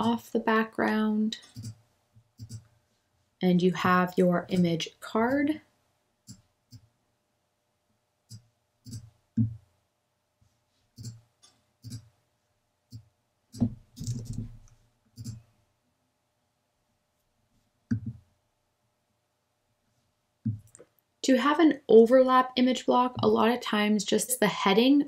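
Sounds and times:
computer mouse clicks: 1.4s - 1.8s, 11.0s - 12.1s, 12.9s - 15.4s
keyboard typing: 1.4s - 1.8s, 2.4s - 2.7s, 4.4s - 5.6s, 11.0s - 12.1s, 12.9s - 15.4s.

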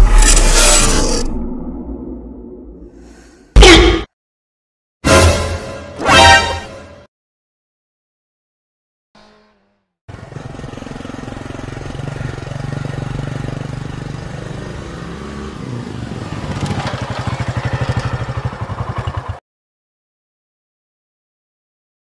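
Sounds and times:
motorcycle engine running: 9.2s - 15.1s, 16.1s - 19.4s.

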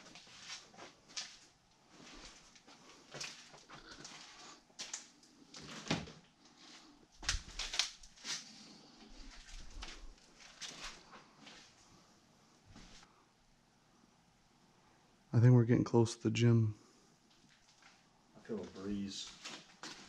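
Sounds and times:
footsteps crunching on littered floor: 0.0s - 5.2s, 6.6s - 11.8s, 18.5s - 20.0s.

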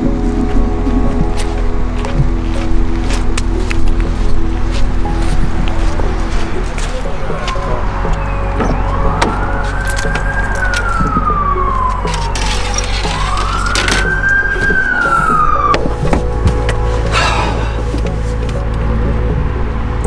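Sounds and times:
wailing siren: 7.2s - 16.4s.

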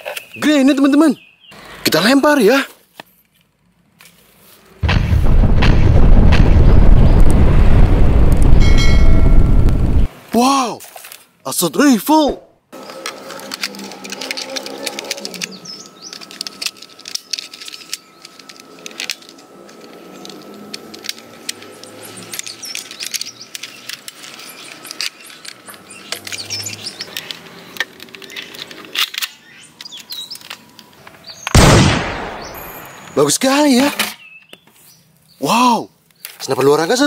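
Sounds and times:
birds chirping: 0.0s - 2.4s, 12.8s - 37.0s
loud bang: 4.8s - 10.1s, 31.6s - 33.2s
toy rifle plastic clicks: 12.9s - 26.4s.

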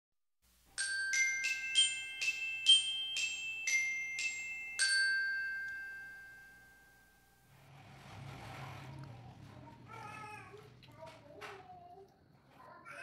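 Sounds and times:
glockenspiel-like chime jingle: 0.8s - 7.4s.

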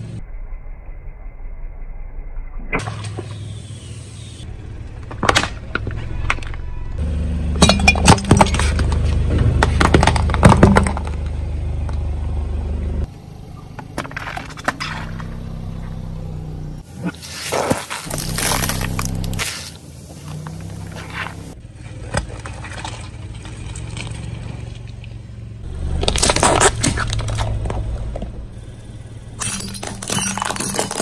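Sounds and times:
low car engine hum: 0.0s - 31.0s
plastic cracking under car tyre: 17.5s - 19.5s, 26.0s - 28.3s.

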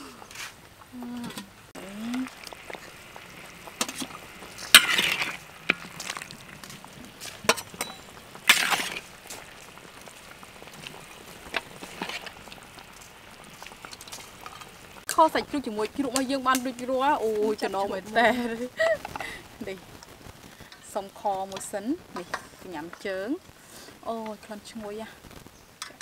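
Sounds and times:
metal ladle scraping steel bowl: 3.8s - 6.3s, 7.2s - 9.2s.

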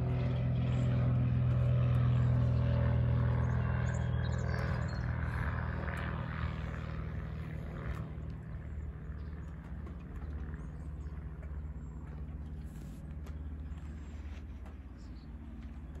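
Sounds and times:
engine humming: 0.0s - 16.0s.

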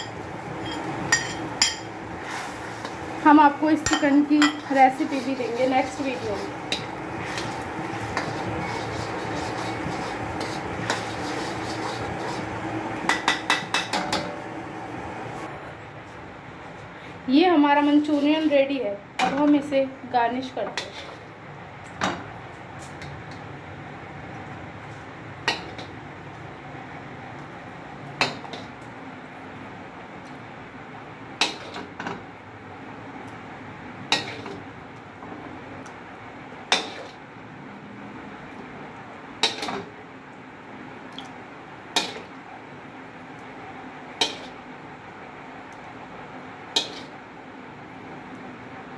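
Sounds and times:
steel spoon clinking on bowl: 0.0s - 1.9s, 3.8s - 4.6s
ladle scraping gravy in a wok: 2.1s - 3.1s, 4.6s - 12.8s, 20.7s - 21.3s.

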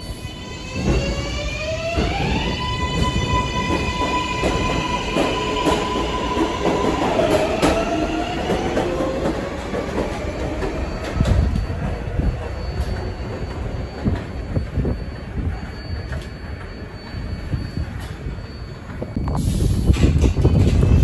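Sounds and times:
train propulsion whine: 0.0s - 21.0s
wheels clattering on rails: 19.8s - 21.0s.

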